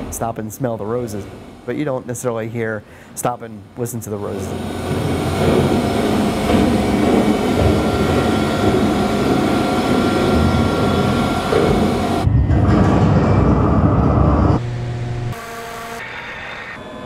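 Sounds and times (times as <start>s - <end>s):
machinery rumble and drone: 4.0s - 15.4s.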